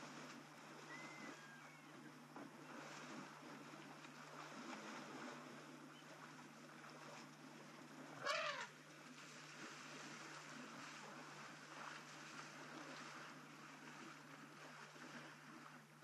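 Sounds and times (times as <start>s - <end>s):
faint steady hum: 0.0s - 16.0s
outdoor background noise: 0.0s - 16.0s
elephant trumpeting: 8.2s - 8.7s.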